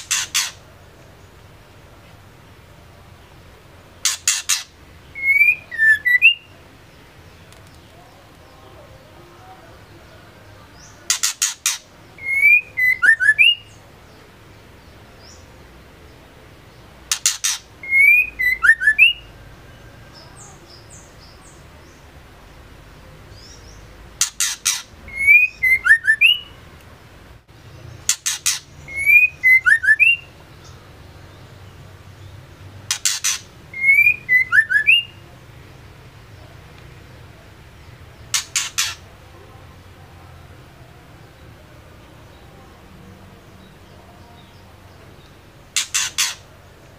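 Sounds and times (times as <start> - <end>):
bird calling with clicks and whistles: 0.0 - 0.6, 4.0 - 6.5, 11.1 - 13.7, 17.1 - 19.3, 24.2 - 26.6, 28.1 - 30.3, 32.9 - 35.1, 38.3 - 39.0, 45.8 - 46.4.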